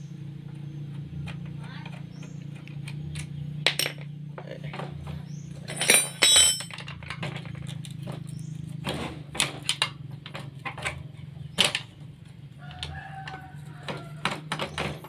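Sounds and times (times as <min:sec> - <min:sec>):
hand tools clinking on metal: 0:05.6 - 0:07.9
sharp metal clink: 0:05.7 - 0:06.8.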